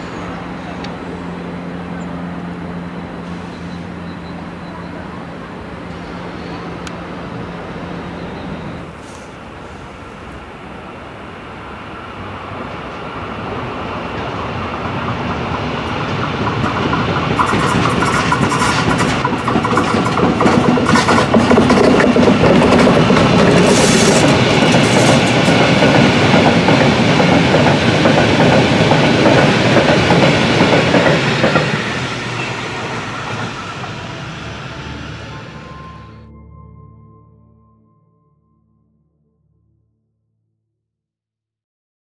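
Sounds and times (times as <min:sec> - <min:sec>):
freight train passing: 0:00.0 - 0:36.3
train wheels clicking over rail joints: 0:13.6 - 0:34.8.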